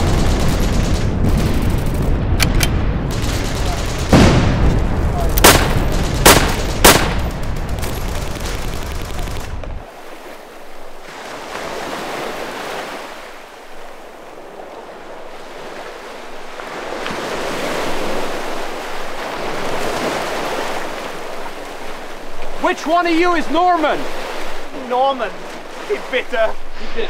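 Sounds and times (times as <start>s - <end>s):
rifle shots: 0.0s - 9.6s
dense low rumble: 0.0s - 9.8s
waves breaking on shore: 1.3s - 27.0s.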